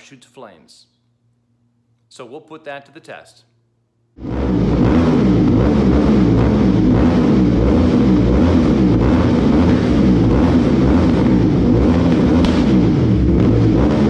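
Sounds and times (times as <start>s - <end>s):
motorcycle engine running: 4.2s - 14.0s.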